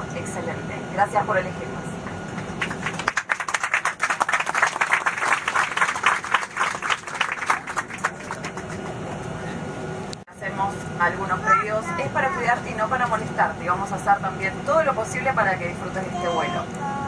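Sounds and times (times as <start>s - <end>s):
airliner cabin hum: 0.0s - 17.0s
passengers clapping: 2.0s - 9.4s.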